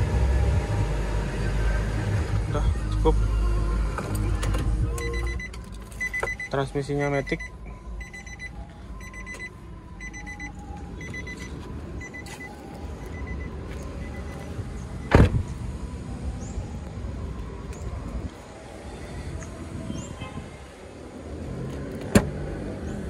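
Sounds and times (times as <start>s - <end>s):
car warning chime beeping: 4.9s - 15.2s
car door shutting: 15.0s - 15.6s, 21.7s - 22.4s.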